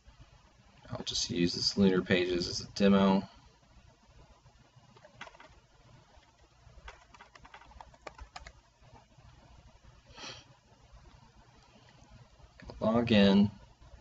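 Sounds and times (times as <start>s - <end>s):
typing on computer keyboard: 5.0s - 8.6s.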